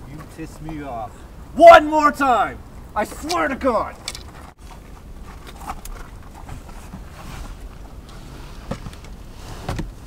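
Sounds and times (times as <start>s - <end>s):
rustling: 3.1s - 10.0s.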